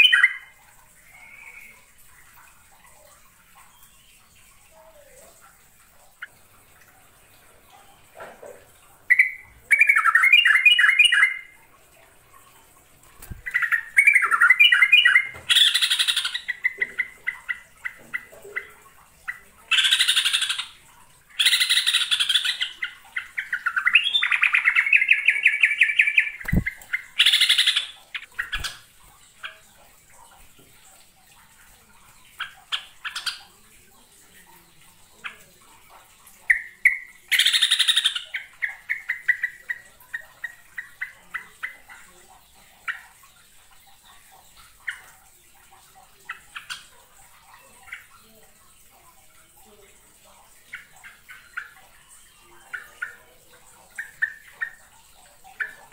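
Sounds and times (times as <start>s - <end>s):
bird warbling: 21.4s - 29.7s.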